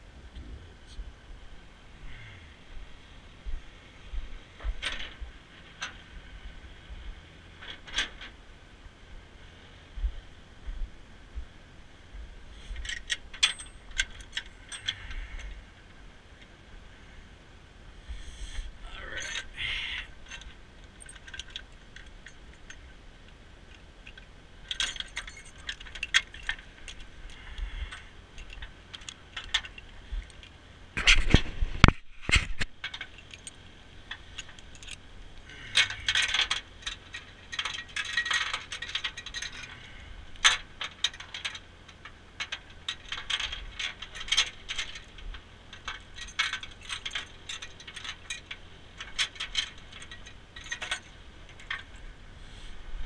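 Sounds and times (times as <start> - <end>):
metal chains clinking and rattling: 4.7 - 6.1, 7.4 - 8.4, 12.6 - 15.6, 18.8 - 23.0, 23.7 - 31.4, 32.8 - 52.2.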